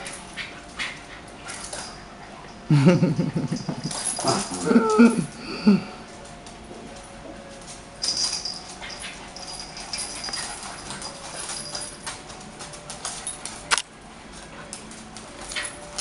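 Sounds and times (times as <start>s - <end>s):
dogs scuffling: 0.0s - 2.6s, 3.6s - 5.4s, 6.0s - 16.0s
dog whining: 4.0s - 5.6s.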